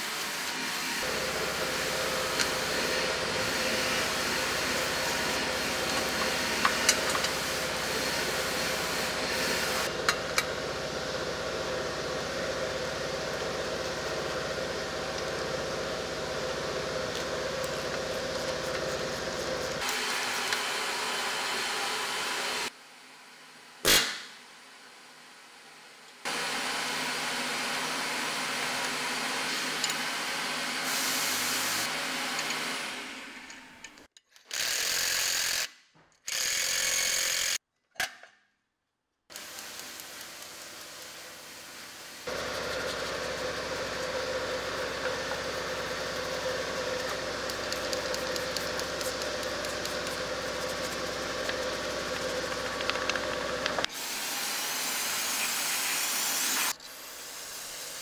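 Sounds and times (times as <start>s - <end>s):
pneumatic tools running: 34.4s - 37.6s.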